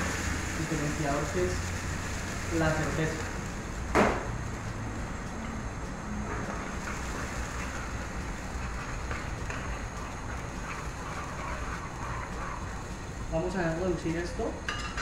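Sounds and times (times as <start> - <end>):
sauce sizzling in a frying pan: 0.0 - 14.7.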